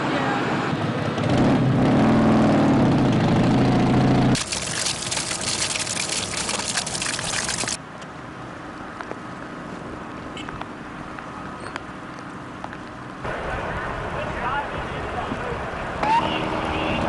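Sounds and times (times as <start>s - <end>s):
outdoor background: 0.0s - 16.9s
water spraying from broken pipe: 4.4s - 7.8s.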